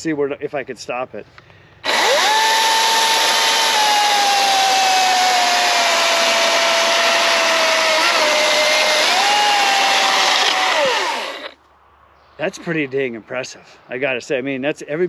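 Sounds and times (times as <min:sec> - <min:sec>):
electric chainsaw cutting log: 0:01.8 - 0:11.6.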